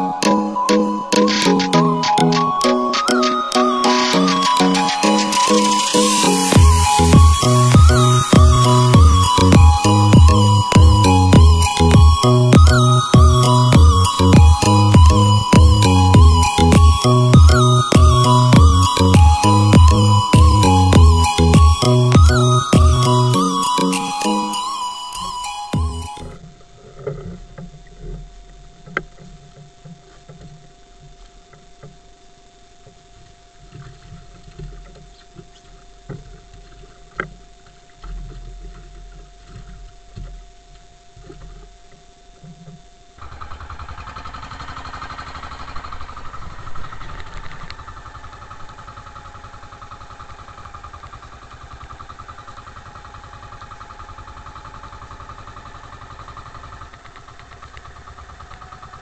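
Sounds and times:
boat engine running: 0.0 - 24.0
faint steady hum: 0.0 - 59.0.

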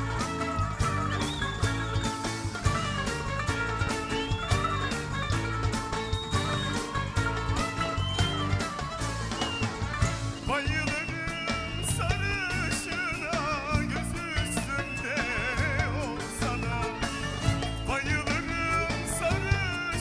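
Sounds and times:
live band music: 0.0 - 20.0
man singing into microphone: 10.4 - 20.0.

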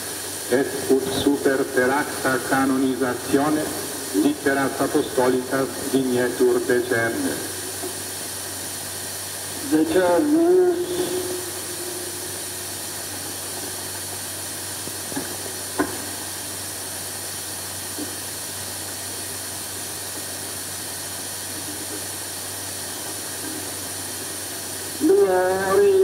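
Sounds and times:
recording hiss: 0.0 - 26.0
low hum: 9.6 - 13.8.

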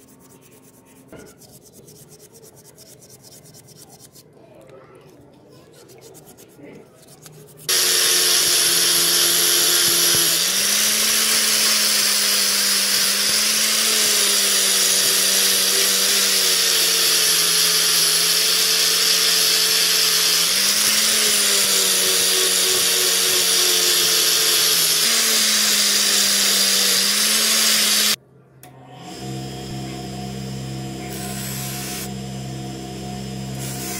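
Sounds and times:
angle grinder grinding metal: 6.0 - 28.2, 28.9 - 33.9.

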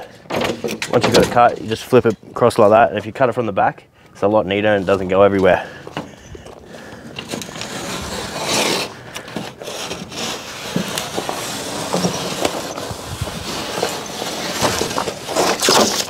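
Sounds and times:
knife cutting drywall paper: 7.5 - 16.0.

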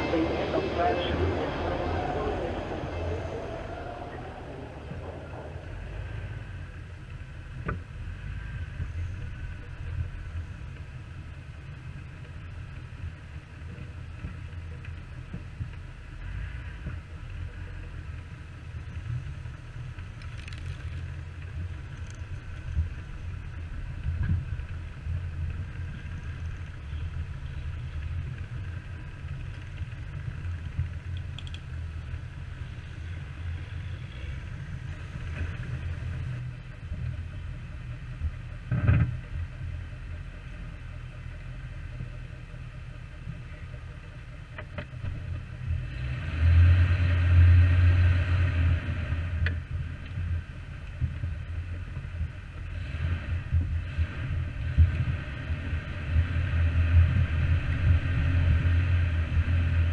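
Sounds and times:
car engine and road rumble: 0.0 - 59.9.

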